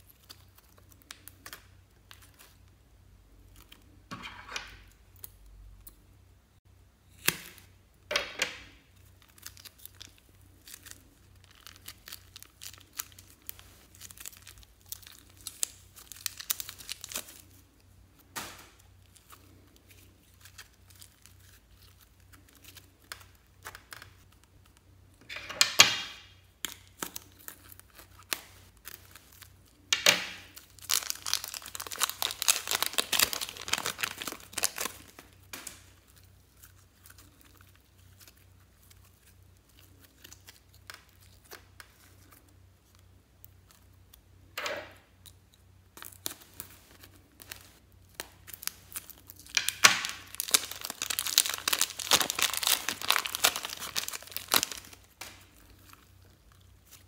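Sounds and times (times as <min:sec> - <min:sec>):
plastic bags crinkling and tearing: 0:08.8 - 0:24.8, 0:26.0 - 0:44.1, 0:46.0 - 0:57.0.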